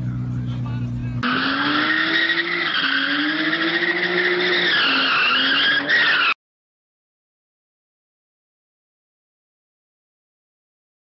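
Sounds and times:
car engine revving: 0:00.4 - 0:06.4
tyres squealing: 0:01.2 - 0:06.4.

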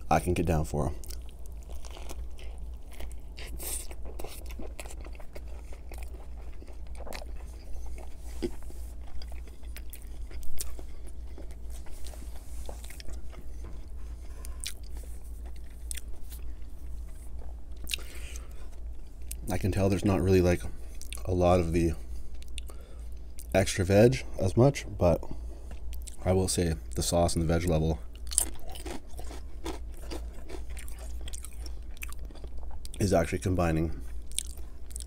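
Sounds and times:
steady low hum: 0:00.0 - 0:35.0
man chewing: 0:01.0 - 0:19.4, 0:25.6 - 0:26.2, 0:28.1 - 0:33.0, 0:34.0 - 0:35.0.

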